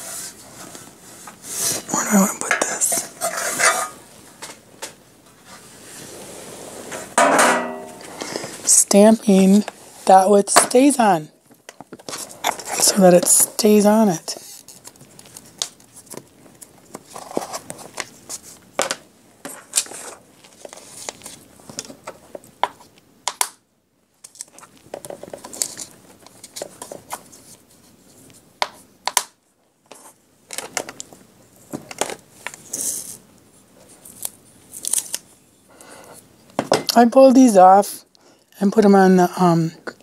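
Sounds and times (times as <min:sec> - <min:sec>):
paper rustling and crinkling: 0:14.3 - 0:18.9, 0:19.5 - 0:22.4.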